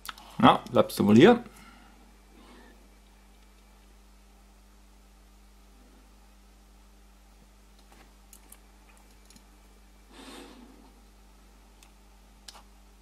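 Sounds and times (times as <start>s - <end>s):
steady low hum: 0.0s - 13.0s
faint clicks of wire handling: 3.0s - 3.9s, 7.7s - 9.5s.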